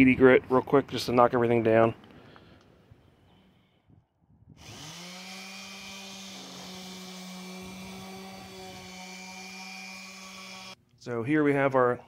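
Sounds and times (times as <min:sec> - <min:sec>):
orbital sander sanding wood: 0:04.6 - 0:10.8.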